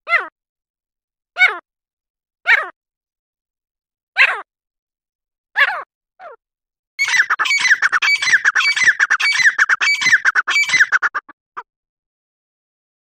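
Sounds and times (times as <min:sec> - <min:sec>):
bird calling harsh notes: 0:07.0 - 0:11.3.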